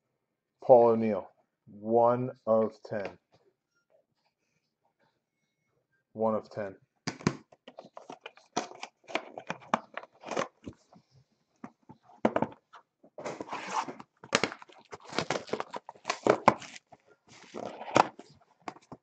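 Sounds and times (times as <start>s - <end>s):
plastic shrink-wrap tearing: 13.4s - 18.3s.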